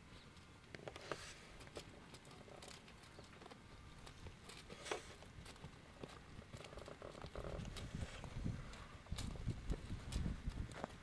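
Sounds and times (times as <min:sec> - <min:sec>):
footsteps on grass: 0:00.9 - 0:01.8, 0:04.1 - 0:06.0.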